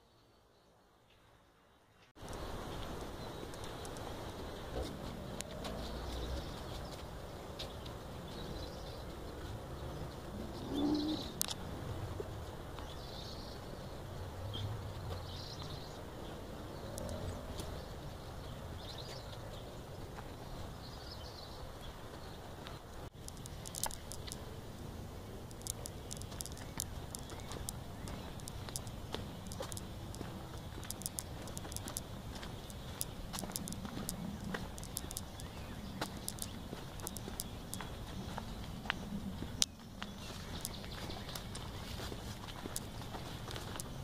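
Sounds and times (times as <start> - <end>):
birds chirping: 0.0 - 44.0
sharp clicks: 23.2 - 24.4, 25.4 - 37.9.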